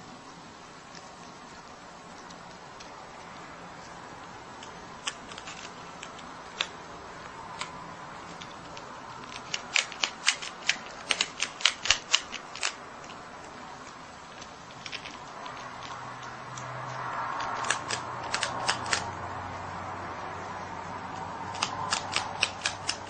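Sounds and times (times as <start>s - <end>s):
animal crunching on a biscuit: 0.8s - 19.1s.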